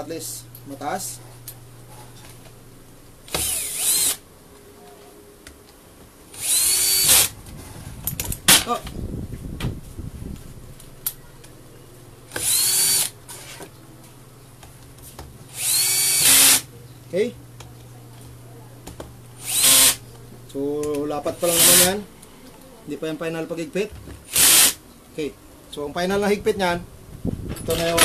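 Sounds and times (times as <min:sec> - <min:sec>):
power drill whine: 0:03.3 - 0:04.2, 0:06.3 - 0:07.4, 0:12.3 - 0:13.1, 0:15.5 - 0:16.6, 0:19.4 - 0:20.0, 0:21.5 - 0:21.9, 0:24.3 - 0:24.8.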